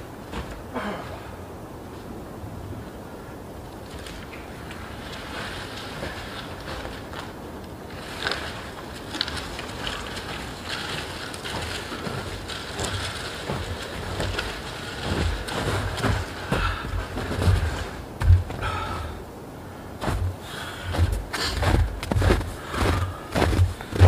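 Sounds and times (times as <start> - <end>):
low wind rumble: 0.0 - 24.0
footsteps in snow: 4.8 - 18.9, 20.0 - 24.0.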